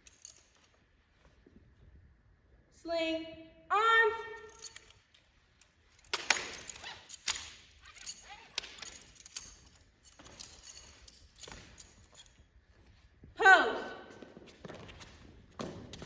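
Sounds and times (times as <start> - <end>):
rifles slapping and knocking: 4.7 - 12.3.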